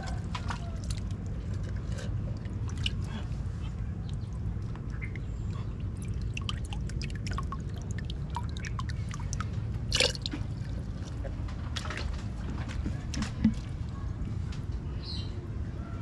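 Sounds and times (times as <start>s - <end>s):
steady low rumble: 0.0s - 16.0s
water dripping and splashing: 2.3s - 3.3s, 4.0s - 12.2s.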